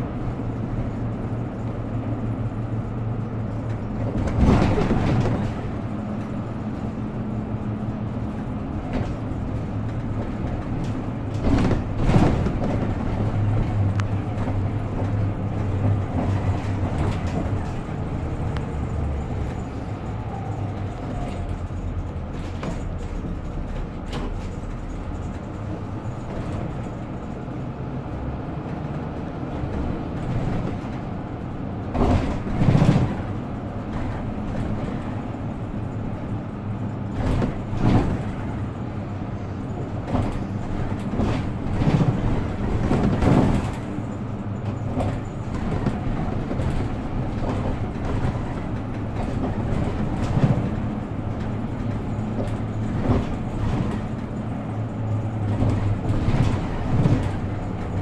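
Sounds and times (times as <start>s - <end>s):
bus engine hum: 0.0s - 58.0s
road noise: 0.0s - 58.0s
knocks from bus body: 3.6s - 6.4s, 7.9s - 17.9s, 21.7s - 27.0s, 31.9s - 35.3s, 37.0s - 38.8s, 39.9s - 58.0s.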